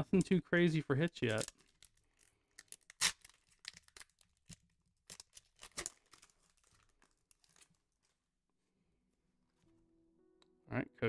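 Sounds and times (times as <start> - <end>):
foil wrapper tearing and crinkling: 1.2 - 8.2.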